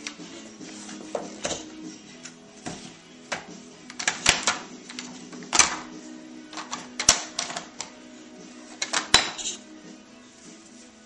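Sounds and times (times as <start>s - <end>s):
plastic toy knocking and clattering: 3.3s - 5.9s, 8.8s - 9.6s.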